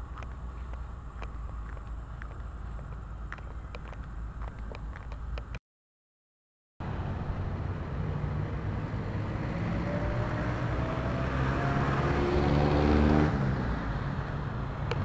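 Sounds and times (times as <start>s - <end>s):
vehicle engine passing by: 6.8s - 15.0s.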